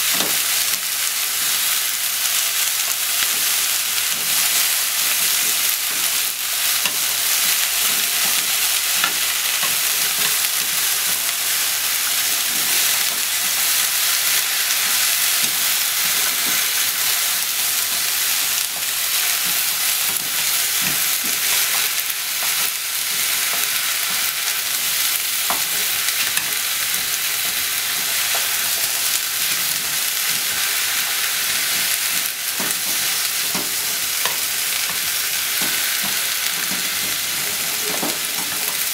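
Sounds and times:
vegetables sizzling in a frying pan: 0.0s - 38.9s.

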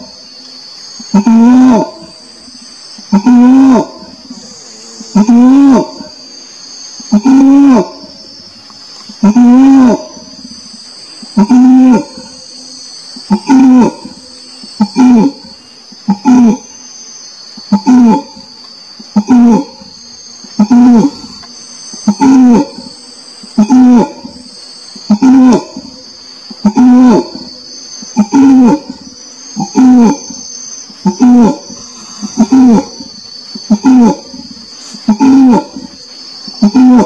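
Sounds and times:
high-pitched insect drone: 0.0s - 37.0s
orangutan calling: 0.9s - 8.4s, 9.0s - 37.0s.

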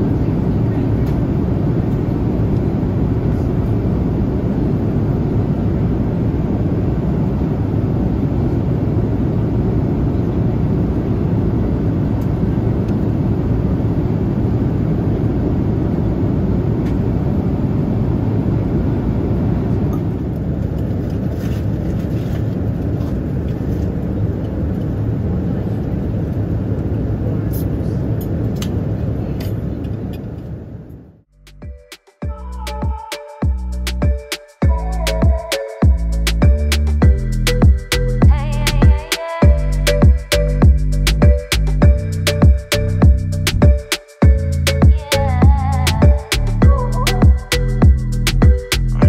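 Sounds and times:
airplane cabin noise: 0.0s - 31.2s.

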